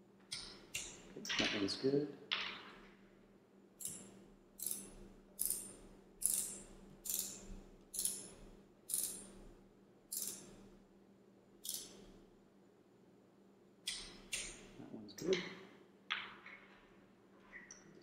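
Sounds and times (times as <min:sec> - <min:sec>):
hand ratchet clicking: 0:03.8 - 0:08.3, 0:08.9 - 0:09.3, 0:10.1 - 0:10.5, 0:11.6 - 0:12.0.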